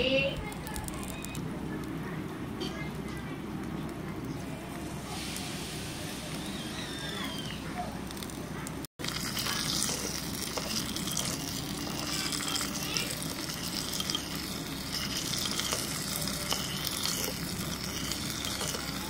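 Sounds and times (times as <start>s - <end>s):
onions sizzling in hot oil: 4.4s - 8.4s, 9.0s - 19.0s
spoon scraping a pot: 9.1s - 19.0s.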